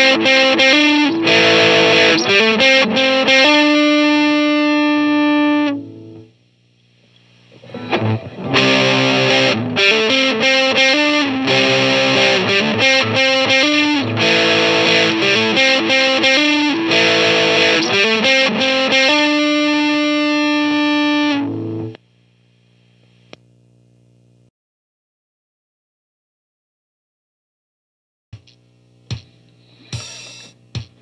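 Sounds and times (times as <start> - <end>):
overdriven electric guitar riff: 0.0 - 6.3, 7.5 - 22.0
faint amp hum: 0.0 - 24.5, 28.4 - 31.0.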